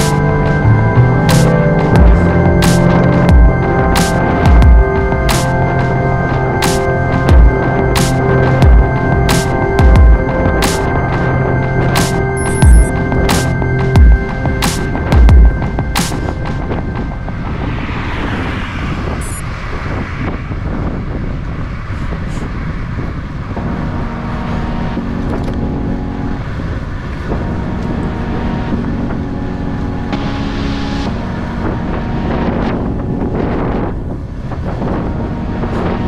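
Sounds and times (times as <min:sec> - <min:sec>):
music of sustained chords: 0:00.0 - 0:19.4, 0:23.5 - 0:36.0
wind buffeting microphone: 0:13.0 - 0:36.0.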